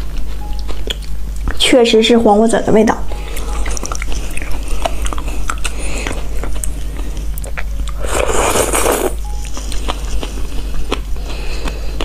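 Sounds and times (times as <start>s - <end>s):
wet chewing clicks: 0.0s - 1.6s, 3.4s - 12.0s
loud slurp: 8.0s - 9.2s
spoon scooping: 8.0s - 9.2s.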